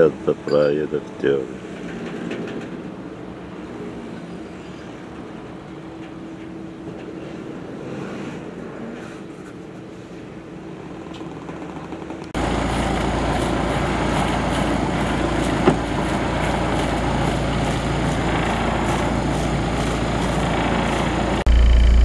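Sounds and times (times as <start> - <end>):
boat engine idling: 12.4 - 22.0.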